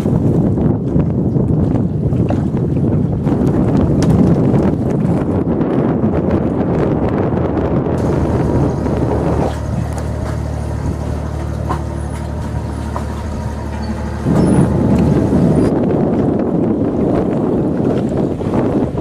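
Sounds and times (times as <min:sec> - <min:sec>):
wind buffeting microphone: 0:00.0 - 0:19.0
ship engine drone: 0:07.3 - 0:19.0.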